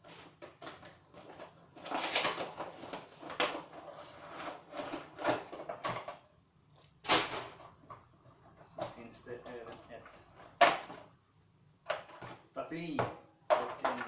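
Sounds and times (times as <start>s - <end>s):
cardboard and plastic rustling: 0.0s - 6.3s, 13.5s - 14.0s.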